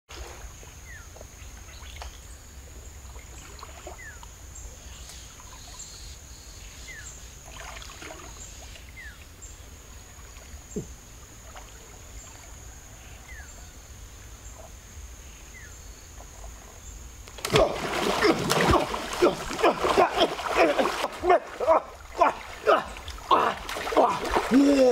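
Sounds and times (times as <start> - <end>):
person splashing in river water: 7.4 - 8.4, 17.3 - 24.9.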